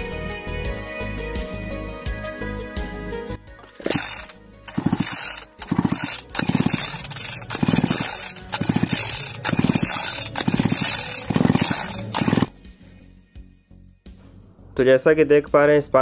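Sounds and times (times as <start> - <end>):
chainsaw recoil starter pulls: 3.6 - 12.5.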